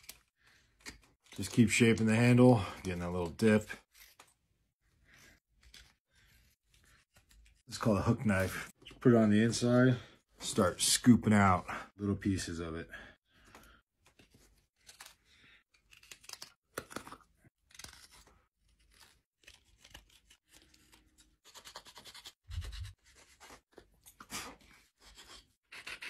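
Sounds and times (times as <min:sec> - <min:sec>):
knife scraping wood: 0:03.7 - 0:08.8.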